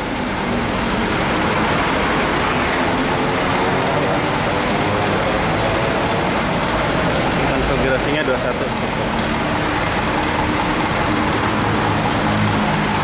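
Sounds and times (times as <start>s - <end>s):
bus diesel engine idling: 4.0s - 13.0s.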